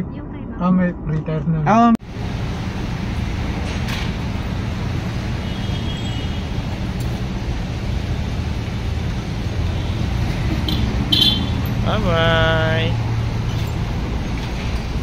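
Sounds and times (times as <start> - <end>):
low vehicle rumble: 0.0 - 15.0.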